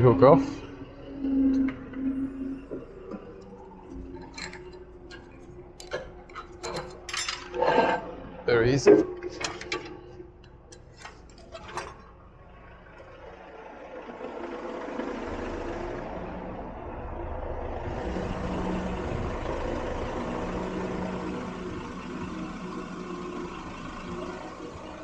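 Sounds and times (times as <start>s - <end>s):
crane hydraulics running: 0.0s - 25.0s
metal clicks and knocks: 4.0s - 7.6s, 9.0s - 12.1s.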